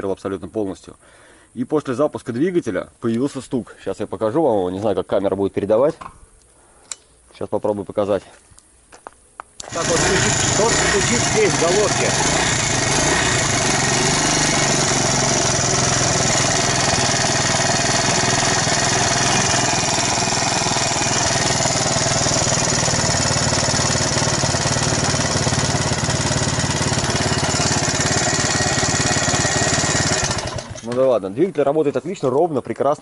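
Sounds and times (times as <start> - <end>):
engine knocking: 9.6 - 30.9
moped engine idling: 9.6 - 30.9.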